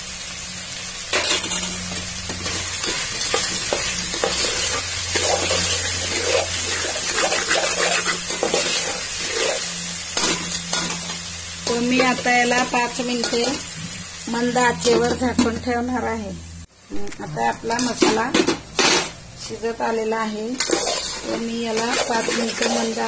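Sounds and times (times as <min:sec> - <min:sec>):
food sizzling in oil: 0:00.0 - 0:23.0
spoon scraping metal pot: 0:02.5 - 0:11.1, 0:20.6 - 0:23.0.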